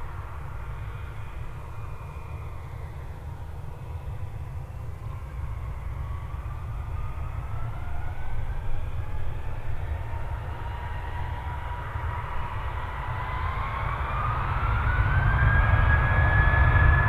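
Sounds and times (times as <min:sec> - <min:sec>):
jet engines spooling up: 0:11.6 - 0:17.0.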